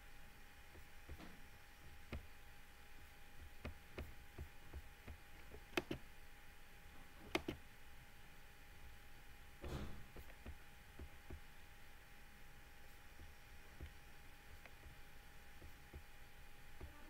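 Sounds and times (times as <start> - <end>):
faint steady hum: 0.0 - 17.0
small clicks: 5.1 - 6.0, 7.3 - 7.6.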